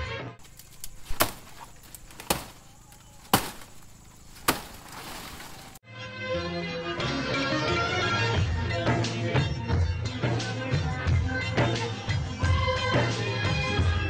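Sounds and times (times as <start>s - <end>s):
blade chopping palm: 0.4s - 5.8s.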